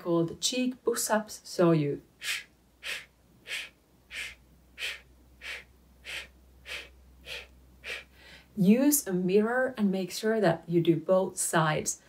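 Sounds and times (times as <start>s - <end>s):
short sharp breaths: 2.1s - 8.6s.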